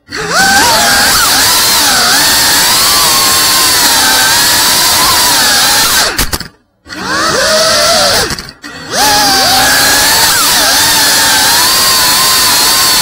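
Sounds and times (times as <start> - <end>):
drone motors whining: 0.0 - 13.0.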